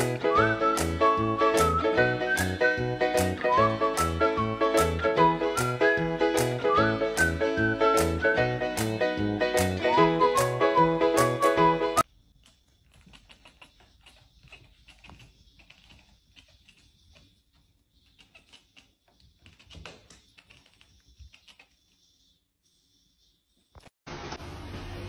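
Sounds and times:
music: 0.0 - 12.0.

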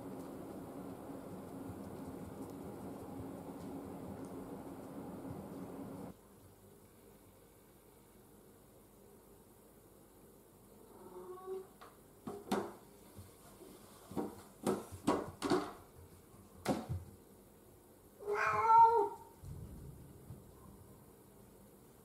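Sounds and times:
cat meowing: 18.2 - 19.4.

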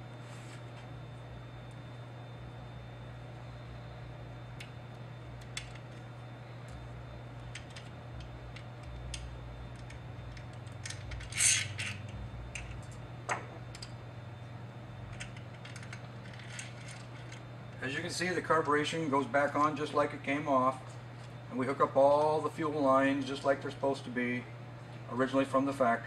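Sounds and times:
steady low hum: 0.0 - 26.0
small parts clicking and rattling: 7.5 - 12.8, 15.1 - 17.4.

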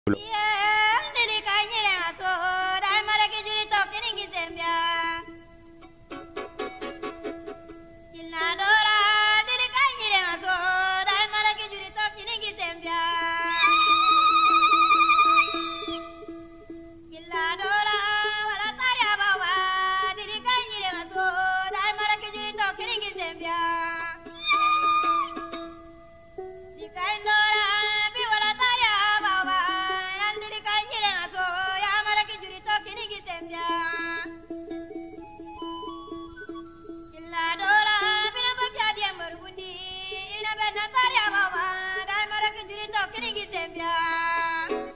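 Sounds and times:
woman singing ornamented melody: 0.1 - 6.2, 6.9 - 44.9
plucked string accompaniment: 0.1 - 44.9
held instrumental accompaniment: 4.8 - 9.5, 21.5 - 30.2, 33.3 - 40.2
high solo voice singing: 8.2 - 16.3, 17.2 - 25.5.

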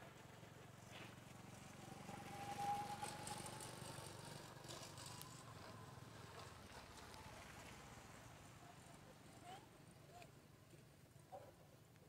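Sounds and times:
passing motor vehicle engine: 0.0 - 9.2.

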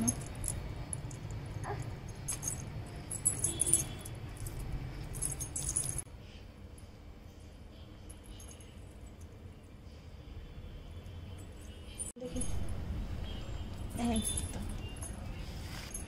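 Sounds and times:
anklet bells jingling: 0.0 - 6.1, 13.8 - 16.0.

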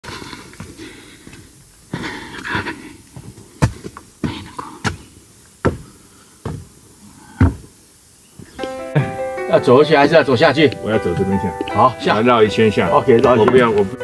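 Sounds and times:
sharp footsteps: 3.1 - 6.8, 11.0 - 14.0.

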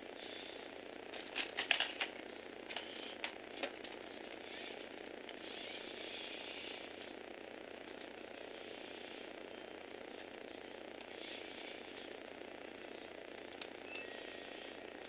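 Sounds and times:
electric motor whirring through gears: 0.2 - 15.0
sharp plastic clicks: 1.3 - 4.0.

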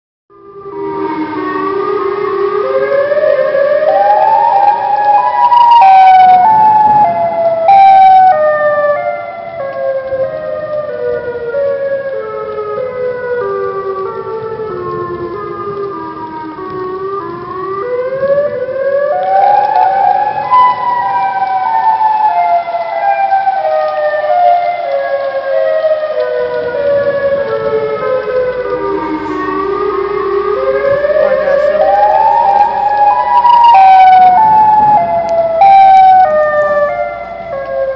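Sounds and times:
stepped electronic siren tone: 28.3 - 37.9.

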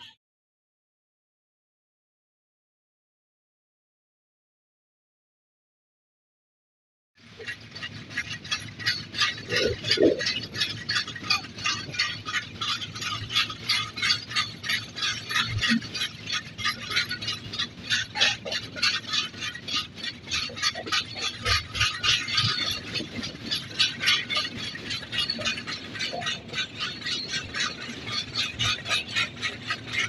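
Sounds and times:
train coach rattling and clattering: 7.2 - 30.0.

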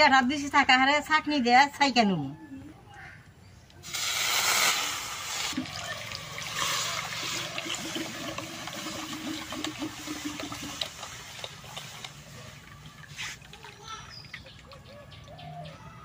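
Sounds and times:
juice pouring and splashing: 3.8 - 14.9.

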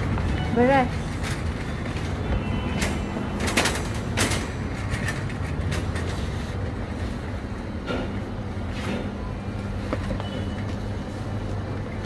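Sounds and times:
shopping trolley rolling on tiles: 0.0 - 7.7
trolley rattling clicks: 0.1 - 6.2.

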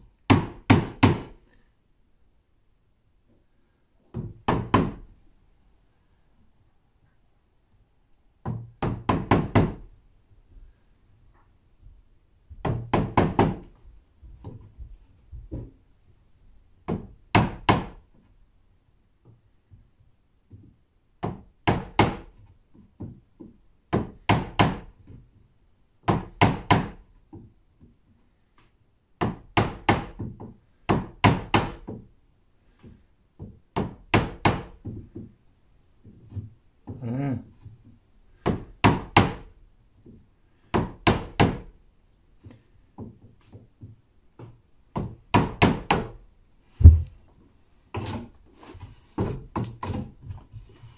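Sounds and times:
hammer striking chisel into wood: 0.3 - 1.3, 4.1 - 5.0, 8.4 - 9.8, 12.6 - 13.7, 16.9 - 18.0, 21.2 - 22.3, 23.9 - 24.9, 26.0 - 27.0, 29.2 - 32.0, 33.8 - 35.0, 38.4 - 39.5, 40.7 - 41.7, 44.9 - 46.2.

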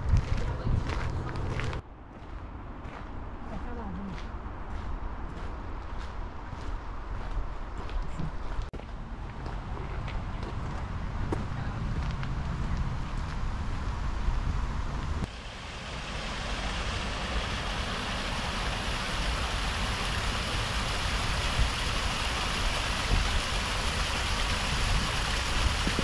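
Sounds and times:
wind rumble on microphone: 0.0 - 2.3, 20.4 - 26.0
flowing water rushing: 15.3 - 26.0.

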